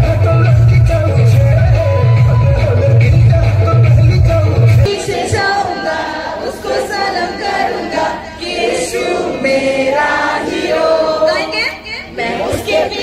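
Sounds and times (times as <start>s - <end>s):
bass-heavy loudspeaker music: 0.0s - 4.9s
crowd singing in chorus: 0.0s - 13.0s.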